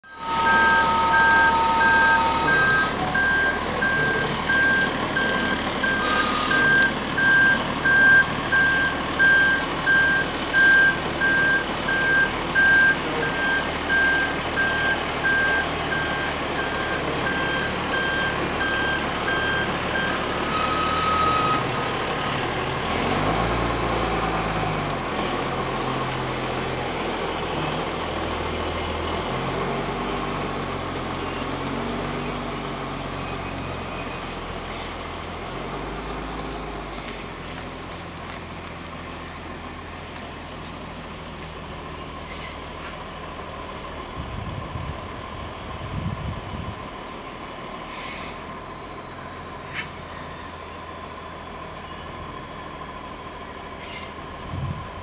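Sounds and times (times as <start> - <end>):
level crossing bell ringing: 0.0 - 4.3
diesel locomotive rumble: 0.0 - 55.0
train horn: 0.2 - 3.0.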